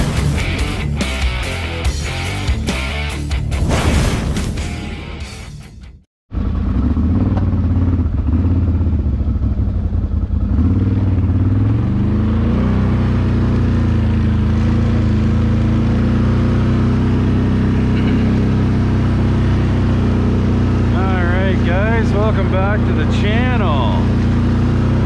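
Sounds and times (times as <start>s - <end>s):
quad bike engine running: 6.3s - 25.0s.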